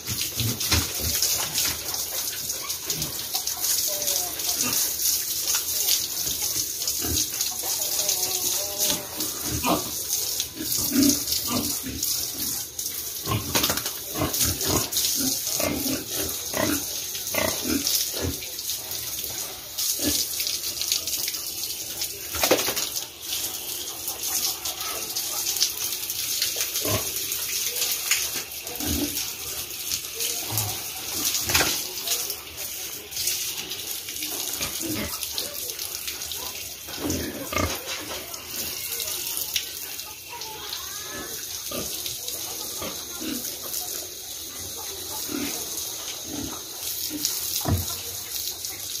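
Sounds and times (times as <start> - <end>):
water spraying from garden hose: 0.0 - 49.0
pigs grunting: 6.9 - 12.6, 13.2 - 18.4, 36.9 - 39.0.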